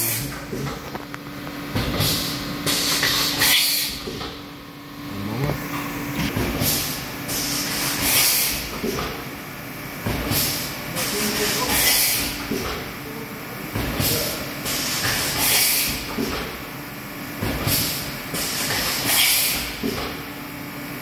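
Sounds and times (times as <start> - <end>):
machine steady hum: 0.0 - 15.0.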